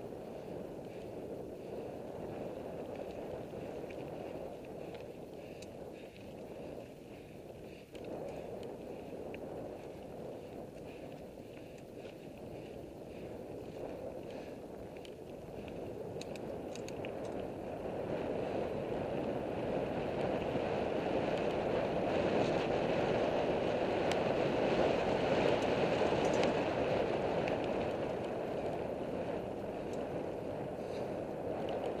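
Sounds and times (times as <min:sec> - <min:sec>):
wind on microphone: 0:00.0 - 0:32.0
small clicks and rattles: 0:02.4 - 0:07.0, 0:07.7 - 0:17.6, 0:25.0 - 0:28.8, 0:29.4 - 0:32.0.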